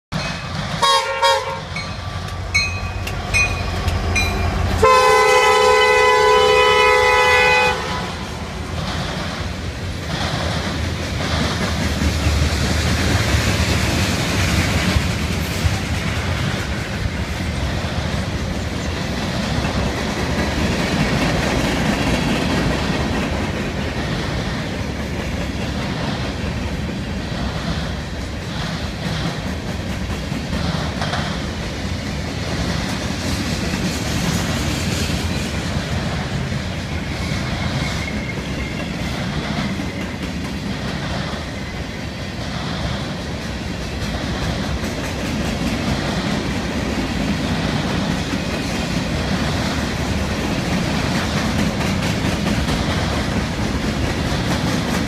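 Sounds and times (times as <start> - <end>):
freight cars rumbling on rails: 0.1 - 55.0
locomotive horn blasts: 0.8 - 1.8, 4.7 - 8.4.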